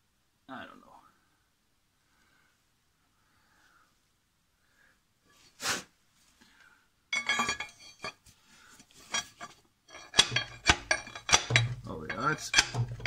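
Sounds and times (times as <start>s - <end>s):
sharp metal clank: 7.2s - 8.1s, 9.1s - 13.0s
pry bar clinking and scraping metal: 7.2s - 8.2s, 9.0s - 13.0s
ringing metal clinks and rattles: 7.2s - 8.2s, 9.1s - 13.0s.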